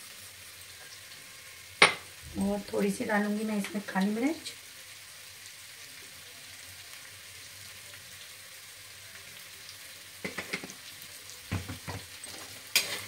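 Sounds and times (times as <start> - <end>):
potatoes sizzling in a pan: 0.0 - 13.0
spoon knocking and scraping pan: 1.8 - 2.1, 10.2 - 10.8, 11.5 - 13.0.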